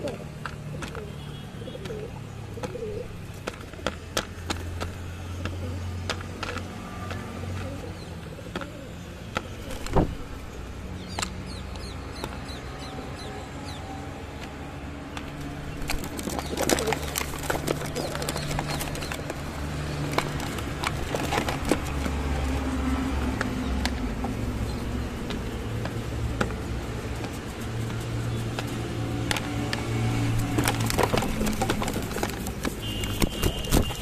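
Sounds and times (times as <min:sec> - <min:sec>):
beaks and feet knocking on plastic: 0:00.0 - 0:07.8, 0:14.4 - 0:34.0
city traffic drone: 0:00.0 - 0:34.0
pigeon wing flaps: 0:09.6 - 0:10.3, 0:15.7 - 0:23.6, 0:24.3 - 0:34.0.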